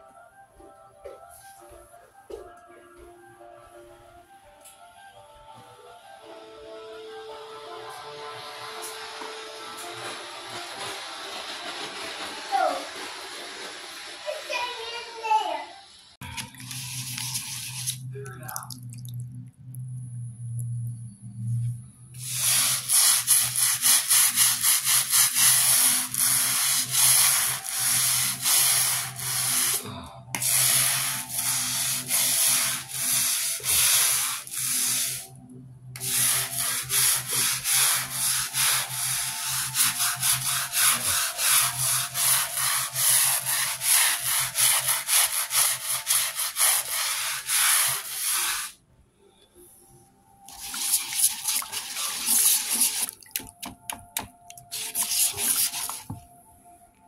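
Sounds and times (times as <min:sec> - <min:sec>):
scrub brush scrubbing tile grout: 0:16.4 - 0:19.1, 0:22.2 - 0:35.3, 0:36.0 - 0:48.8, 0:50.5 - 0:53.8, 0:54.5 - 0:56.2.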